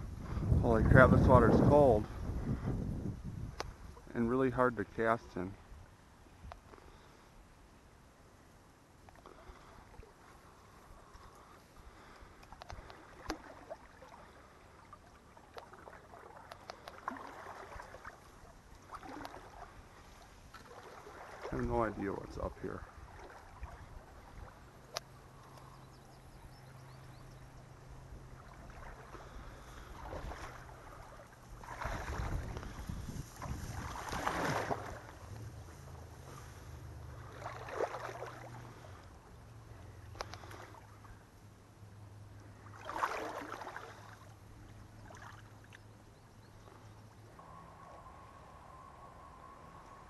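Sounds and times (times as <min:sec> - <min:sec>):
faint low hum: 0:00.0 - 0:50.0
water sloshing around legs: 0:09.1 - 0:22.0, 0:22.8 - 0:26.1, 0:26.7 - 0:41.4, 0:42.2 - 0:47.0.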